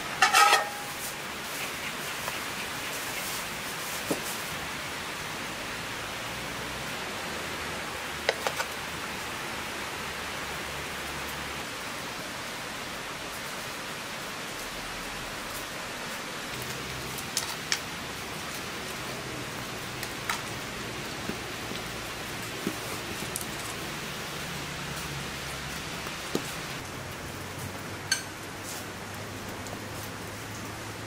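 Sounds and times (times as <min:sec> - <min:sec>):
light rain hiss: 0:00.0 - 0:31.0
metal plate and spoon clink: 0:00.2 - 0:00.9, 0:28.1 - 0:28.4.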